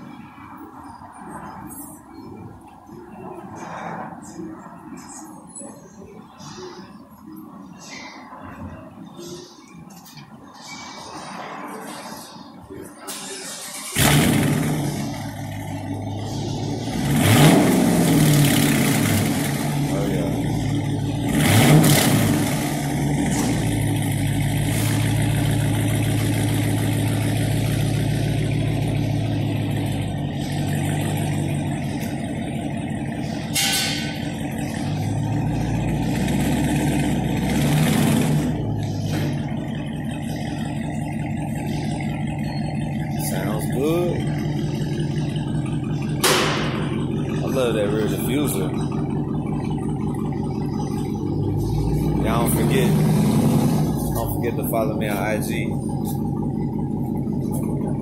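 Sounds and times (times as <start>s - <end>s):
car engine idling: 0.0s - 58.0s
engine revving: 13.1s - 58.0s.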